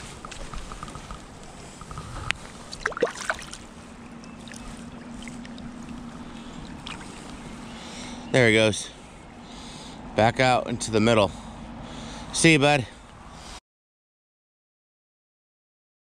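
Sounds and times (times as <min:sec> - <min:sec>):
creek water splashing and lapping: 0:00.0 - 0:08.3
faint steady hum: 0:00.0 - 0:13.6.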